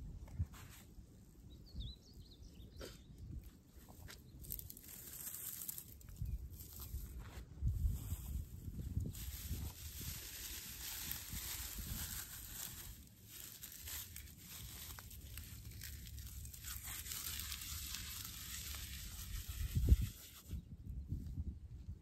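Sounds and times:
dry stalks crackling and tearing: 0:04.4 - 0:07.2, 0:08.0 - 0:20.5.

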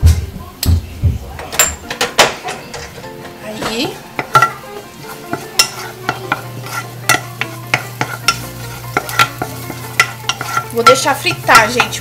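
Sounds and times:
wooden spatula scraping a pot: 0:02.8 - 0:12.0
garlic sizzling in oil: 0:03.0 - 0:12.0.

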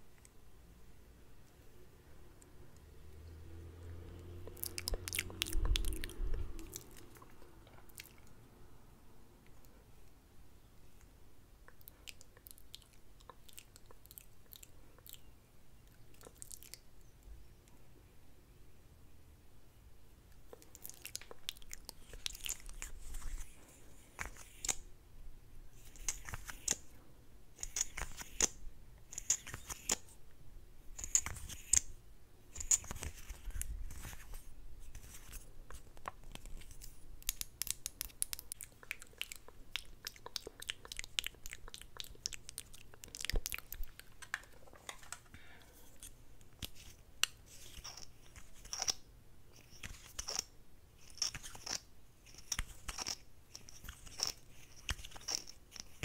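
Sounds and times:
wet lip smacks and clicks: 0:04.4 - 0:08.3, 0:36.0 - 0:44.4.

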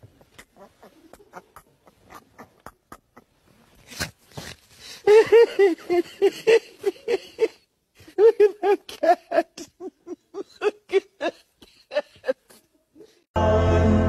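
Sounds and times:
man laughing uncontrollably: 0:05.1 - 0:12.6.

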